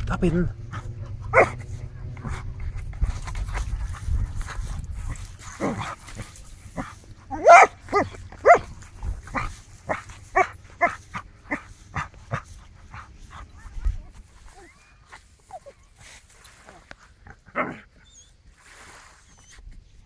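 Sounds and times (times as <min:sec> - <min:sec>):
small dog barking: 0:01.3 - 0:01.7, 0:07.3 - 0:08.7, 0:09.3 - 0:12.1.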